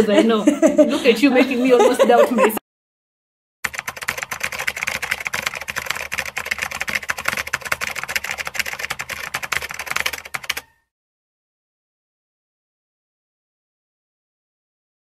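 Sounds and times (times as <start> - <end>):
rapid keyboard typing: 3.6 - 10.8.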